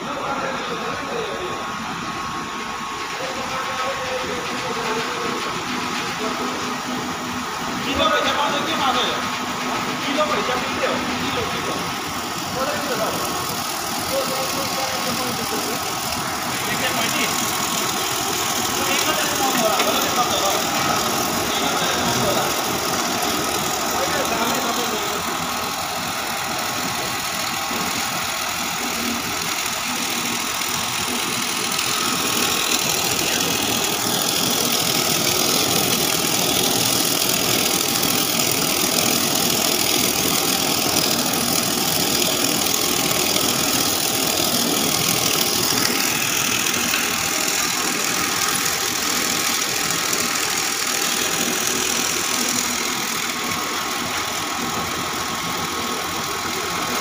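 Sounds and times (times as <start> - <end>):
extruder machine running: 0.0 - 57.0.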